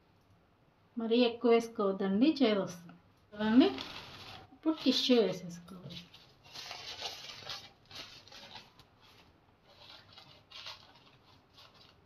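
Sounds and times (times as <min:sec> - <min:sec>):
paper towels rustling and crinkling: 0:03.4 - 0:12.0.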